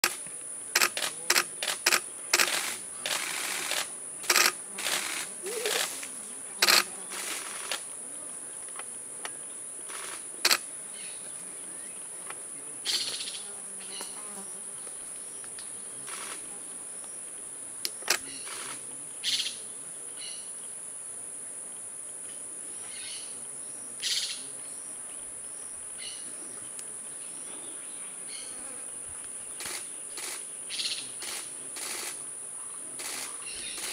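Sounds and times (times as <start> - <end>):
sharp clicks: 0.0 - 5.0, 6.6 - 6.9, 9.9 - 10.6
short noisy bursts: 0.8 - 7.8
high-pitched insect drone: 0.8 - 7.9, 29.6 - 33.9.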